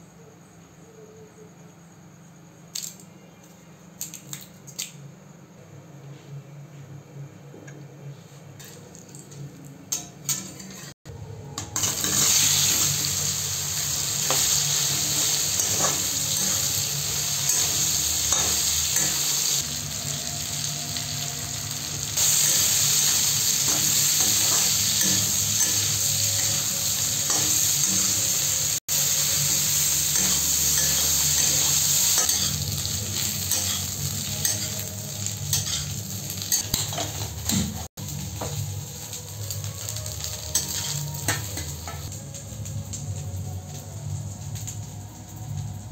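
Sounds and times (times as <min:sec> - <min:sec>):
slices sizzling in hot oil: 0:11.8 - 0:45.9.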